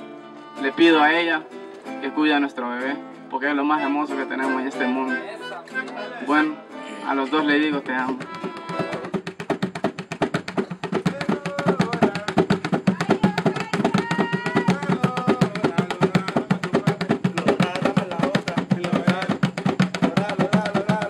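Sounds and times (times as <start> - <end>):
hands drumming on plastic buckets: 7.6 - 21.0.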